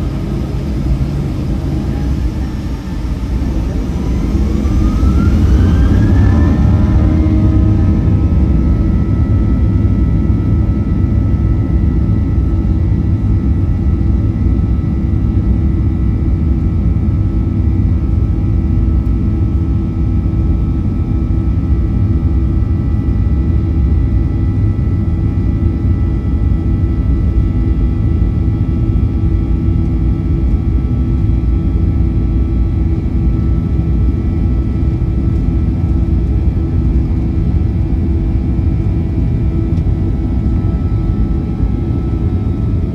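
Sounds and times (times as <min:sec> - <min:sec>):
jet engines roaring in cabin: 0:00.0 - 0:42.9.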